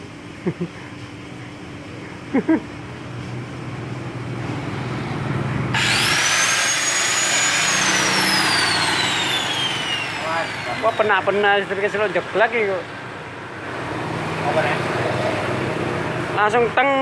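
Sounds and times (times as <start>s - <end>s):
angle grinder whine: 5.7s - 16.6s.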